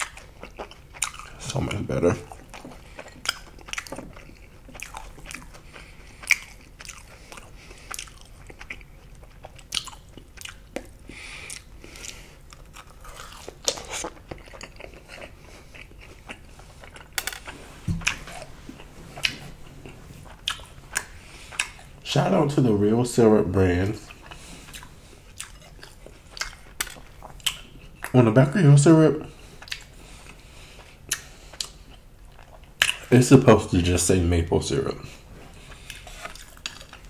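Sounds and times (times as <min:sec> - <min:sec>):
crunchy bites and chewing: 0:00.0 - 0:22.0, 0:35.5 - 0:37.0.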